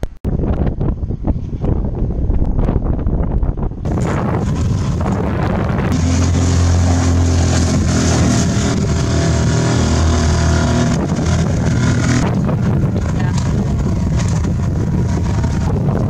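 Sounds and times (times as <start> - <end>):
wind on microphone: 0.0 - 16.0
choppy water: 2.3 - 16.0
outboard motor running: 3.9 - 16.0.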